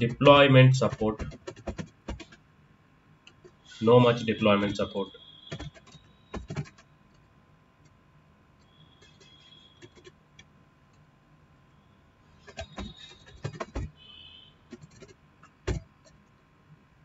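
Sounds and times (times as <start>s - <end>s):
computer keyboard typing: 0.0s - 2.4s, 3.3s - 7.3s, 8.6s - 10.5s, 12.4s - 16.3s.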